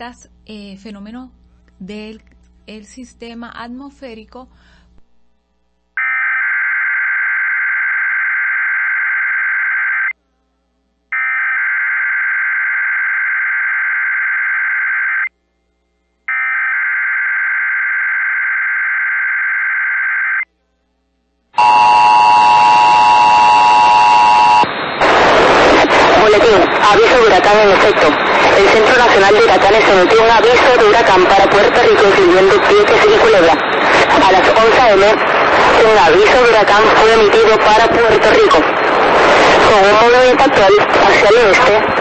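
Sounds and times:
warbling data tones: 0:06.0 - 0:10.2, 0:11.2 - 0:15.3, 0:16.3 - 0:20.4, 0:21.6 - 0:42.0
two-tone attention signal: 0:21.6 - 0:24.7.

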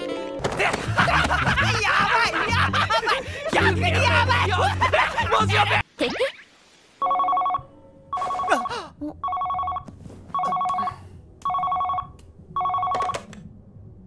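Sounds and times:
electronic two-tone phone ring: 0:07.0 - 0:10.9, 0:11.5 - 0:13.2.

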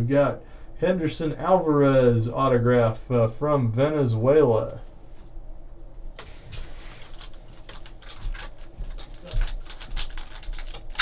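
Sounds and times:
foil pack crinkling and tearing: 0:06.5 - 0:11.0.

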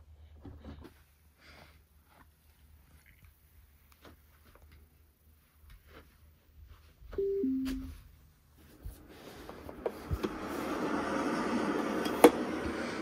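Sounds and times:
two-note descending beep: 0:07.2 - 0:08.0.

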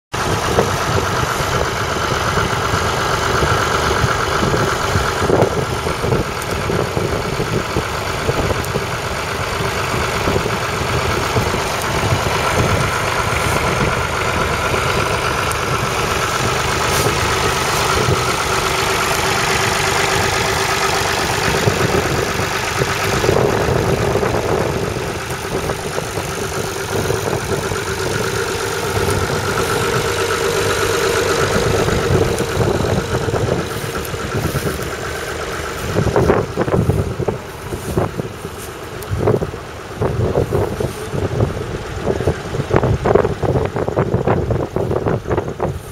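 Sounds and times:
diesel tractor engine idling: 0:00.1 - 0:45.9.

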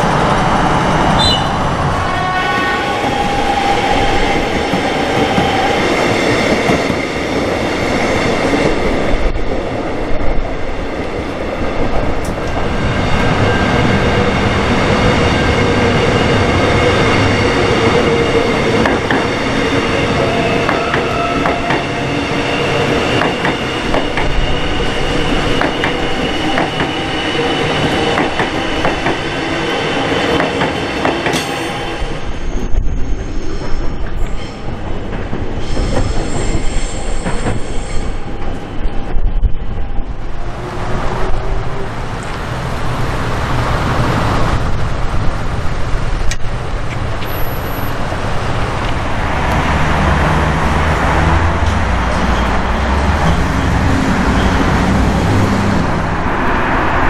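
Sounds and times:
train wheels clattering on track: 0:02.5 - 0:08.9, 0:15.0 - 0:31.9, 0:33.6 - 0:38.6.

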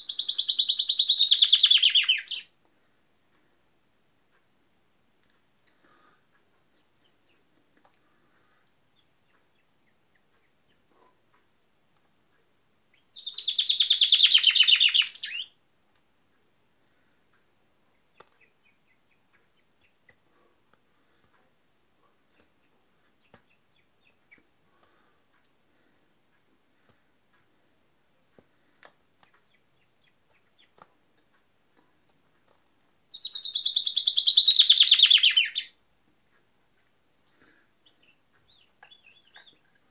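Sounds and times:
chaffinch singing: 0:00.0 - 0:02.5, 0:12.9 - 0:15.6, 0:29.2 - 0:31.0, 0:33.0 - 0:35.8, 0:37.8 - 0:39.9.

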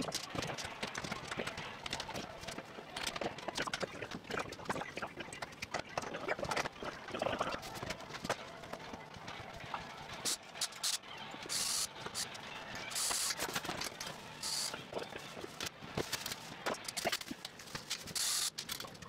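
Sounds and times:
clicks and knocks of parts handled: 0:15.6 - 0:19.0.

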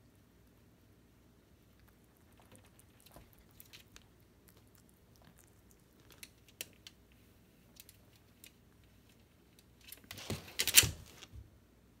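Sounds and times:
rabbit crunching cabbage: 0:00.0 - 0:11.3
rustling and scraping: 0:06.0 - 0:11.4.

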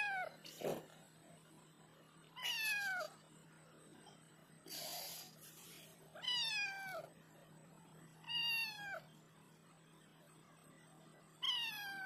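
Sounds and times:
cat meowing: 0:02.4 - 0:03.1, 0:08.3 - 0:09.0, 0:11.4 - 0:12.0.

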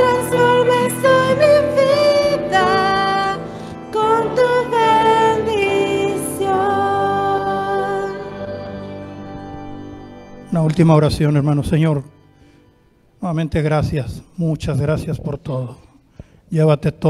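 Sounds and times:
woman singing into a microphone: 0:00.0 - 0:08.7
instrumental accompaniment: 0:00.0 - 0:13.2.

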